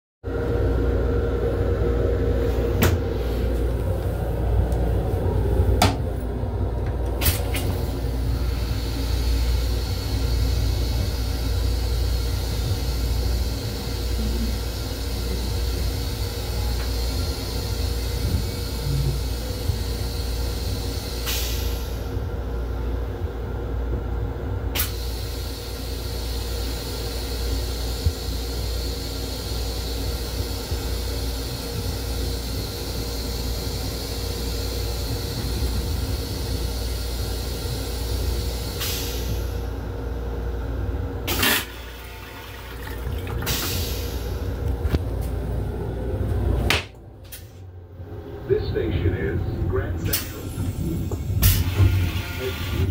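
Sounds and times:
train rumbling: 0:00.3 - 0:52.9
toilet flushing: 0:41.3 - 0:44.8, 0:51.4 - 0:52.9.

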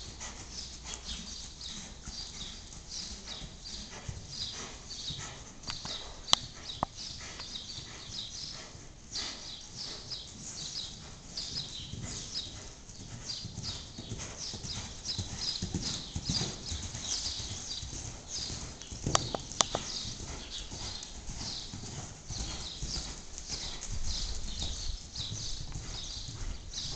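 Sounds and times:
horse hoofbeats on sand: 0:00.0 - 0:26.9
sharp clicks: 0:19.1 - 0:19.9.

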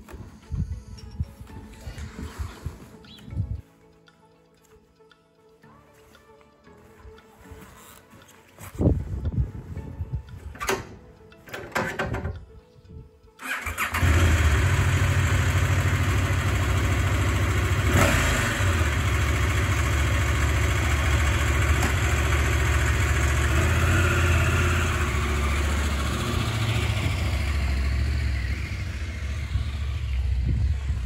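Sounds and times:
motorcycle pulling away: 0:13.4 - 0:31.0
motorcycle engine idling: 0:13.6 - 0:31.0.

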